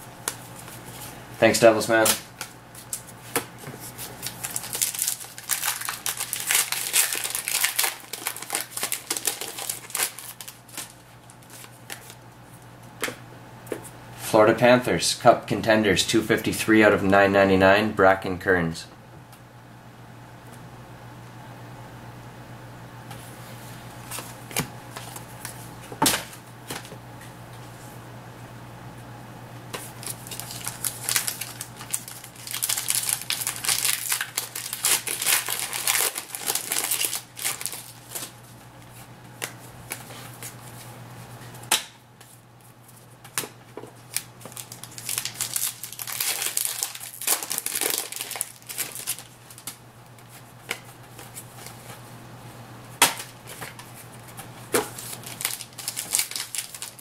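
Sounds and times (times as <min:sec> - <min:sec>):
card wrappers crinkling: 0:03.8 - 0:12.2, 0:29.8 - 0:38.6, 0:43.9 - 0:52.0, 0:53.2 - 0:57.0.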